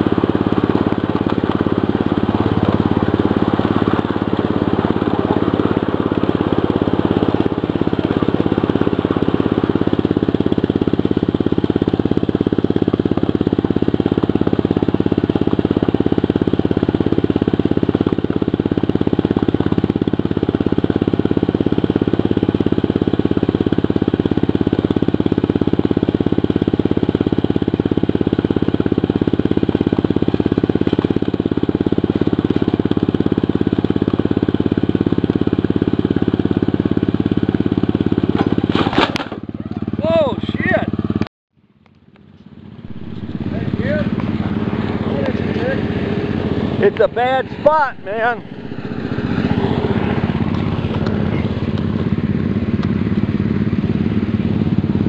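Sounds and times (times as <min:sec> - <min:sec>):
miniature locomotive engine running: 0:00.0 - 0:41.2.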